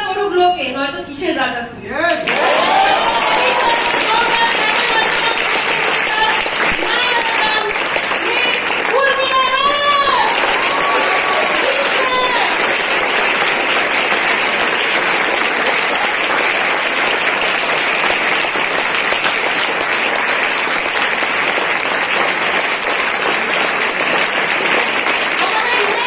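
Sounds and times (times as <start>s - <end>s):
crowd clapping: 2.1s - 26.0s.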